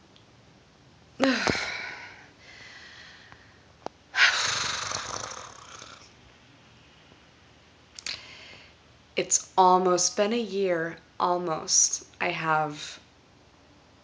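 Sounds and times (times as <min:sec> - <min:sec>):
woman exhaling heavily: 0:01.2 - 0:03.4.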